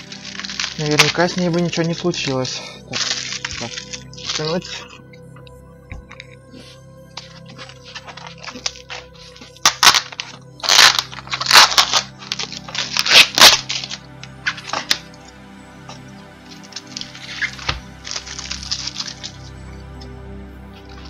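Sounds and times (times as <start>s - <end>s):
plastic film crinkling and tearing: 0.0s - 4.8s, 7.2s - 15.3s, 15.9s - 20.0s.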